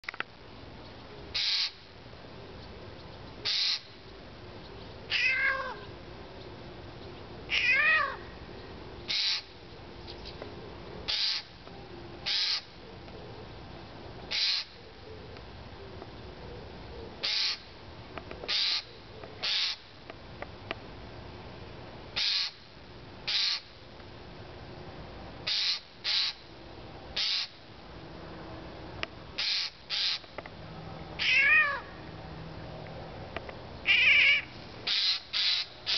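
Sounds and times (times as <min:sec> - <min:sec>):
jay harsh rasping calls: 0:01.4 - 0:01.8, 0:03.4 - 0:03.9, 0:09.1 - 0:09.5, 0:11.1 - 0:11.5, 0:12.2 - 0:12.7, 0:14.3 - 0:14.8, 0:17.2 - 0:17.6, 0:18.5 - 0:19.8, 0:22.2 - 0:22.6, 0:23.3 - 0:23.6, 0:25.5 - 0:26.4, 0:27.2 - 0:27.6, 0:29.4 - 0:30.2, 0:33.9 - 0:35.9.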